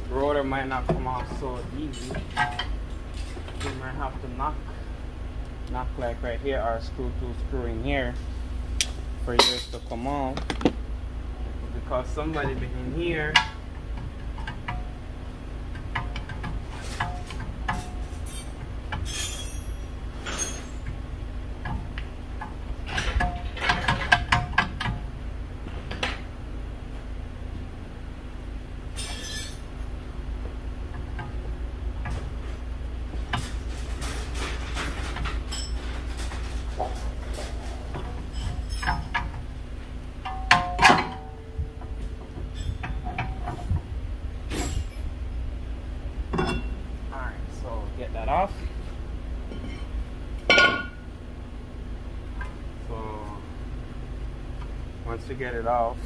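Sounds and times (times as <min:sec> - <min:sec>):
metal striking brake rotor: 0:08.8 - 0:10.0
metal clinks and knocks: 0:08.8 - 0:10.7, 0:15.7 - 0:20.9, 0:28.9 - 0:29.7, 0:33.2 - 0:39.5.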